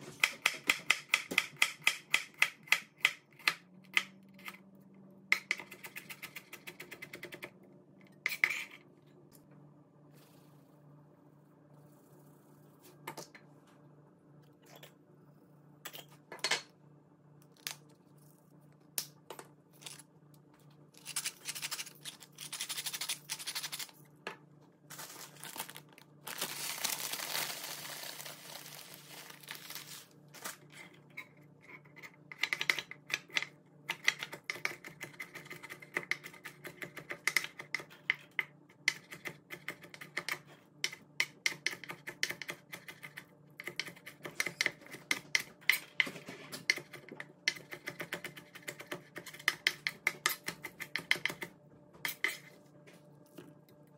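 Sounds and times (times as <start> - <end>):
plastic bag rustling: 24.9 - 30.6.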